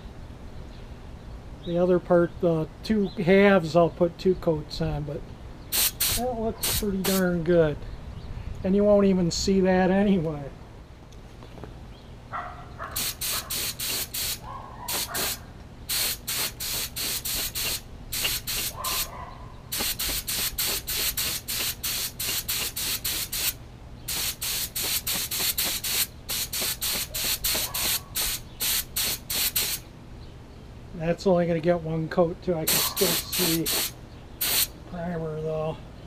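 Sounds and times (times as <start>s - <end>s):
spray gun hissing bursts: 5.7s - 7.3s, 13.0s - 19.1s, 19.7s - 29.8s, 32.7s - 34.7s.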